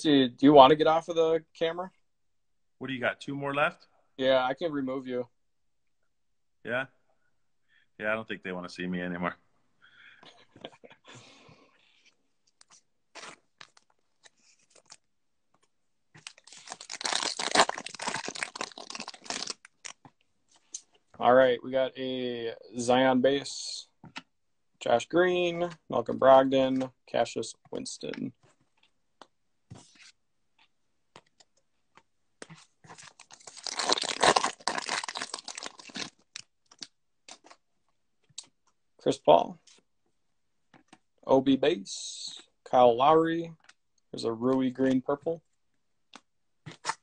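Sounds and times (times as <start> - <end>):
wrapper crackling tear: 16.2 - 20.0, 33.0 - 37.5
wrapper rustling: 16.2 - 20.0, 32.8 - 37.5.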